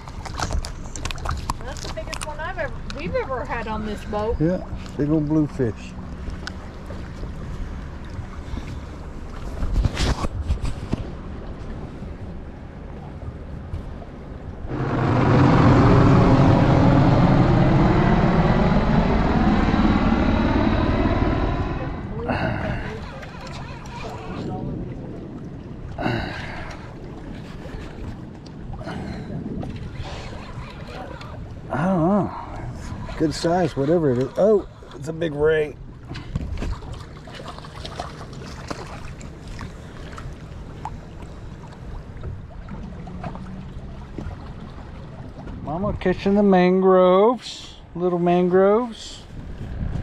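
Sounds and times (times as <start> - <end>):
small water splashes: 0.0 - 3.0, 32.5 - 45.7
boat engine idling: 11.2 - 29.4
helicopter flying low overhead: 14.2 - 26.1.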